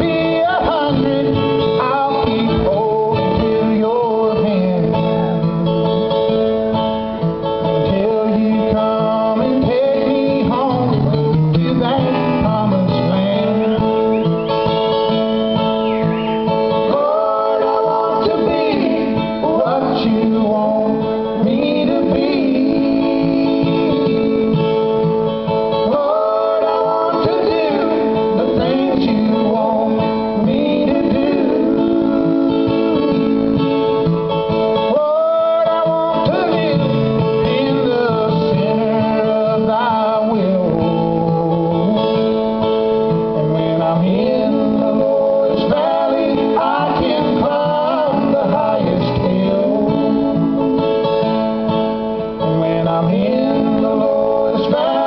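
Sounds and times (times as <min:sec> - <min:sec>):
man singing: 0:00.0 - 0:06.3, 0:07.6 - 0:14.3, 0:16.5 - 0:51.4, 0:52.2 - 0:55.0
acoustic guitar strumming: 0:00.0 - 0:55.0.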